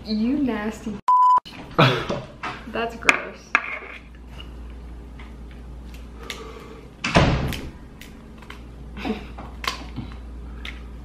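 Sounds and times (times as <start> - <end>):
crab shells cracking: 7.5 - 8.7, 9.5 - 10.9.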